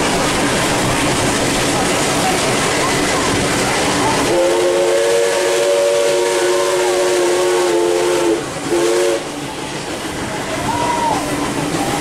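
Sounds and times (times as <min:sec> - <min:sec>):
steam train hissing: 0:00.0 - 0:12.0
steam locomotive whistle: 0:04.2 - 0:09.4.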